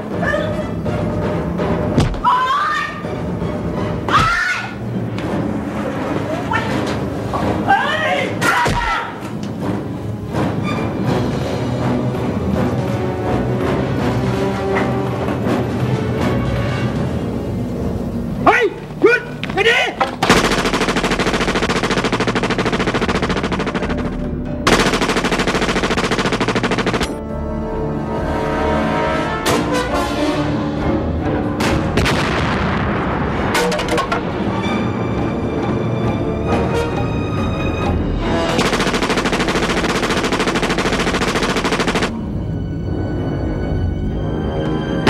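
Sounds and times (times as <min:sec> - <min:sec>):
dramatic film score: 0:00.0 - 0:45.0
music: 0:00.0 - 0:45.0
automatic rifle fire: 0:20.2 - 0:27.2, 0:38.5 - 0:42.1
scattered gunshots: 0:20.2 - 0:27.2, 0:38.5 - 0:42.1.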